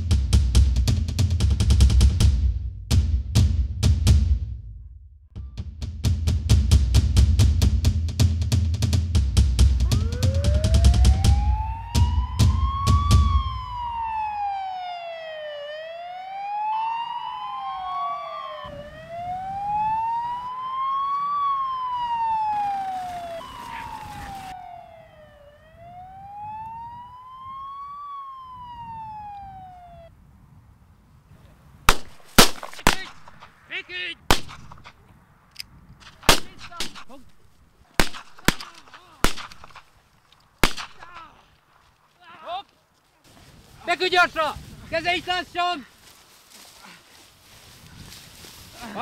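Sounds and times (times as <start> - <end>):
siren wailing: 9.8 - 30.2
pistol shots: 31.9 - 33.6, 34.3 - 35.0, 36.0 - 37.2, 38.0 - 39.9, 40.6 - 41.3.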